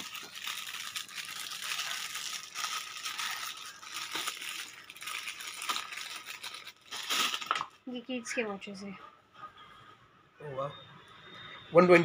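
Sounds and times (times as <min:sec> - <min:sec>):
plastic wrapper crinkling: 0:00.0 - 0:07.9.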